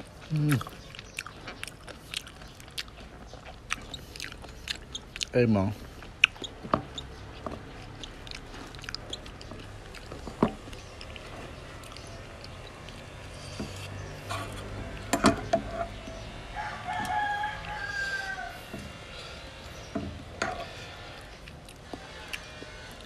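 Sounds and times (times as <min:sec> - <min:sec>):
rooster crowing: 0:16.2 - 0:18.9.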